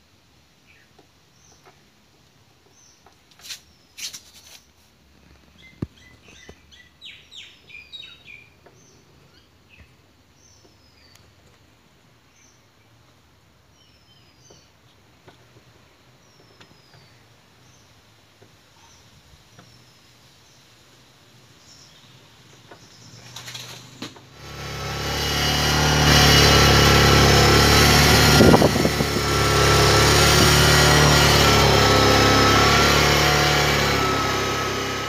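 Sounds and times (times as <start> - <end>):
motorcycle engine revving: 23.0 - 35.0.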